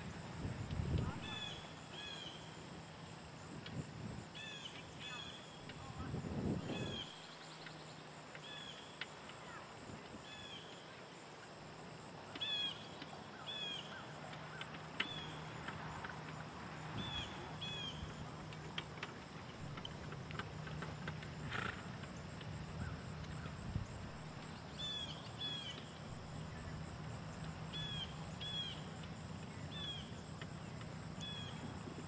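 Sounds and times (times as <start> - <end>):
cart and harness clicks: 13.9 - 23.6.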